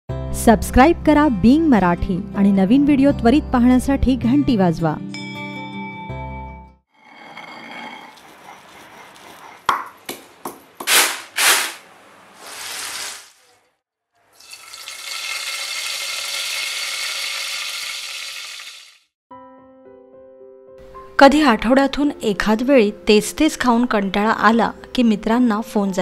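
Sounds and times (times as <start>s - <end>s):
oil sizzling in frying pan: 14.3s - 19.1s.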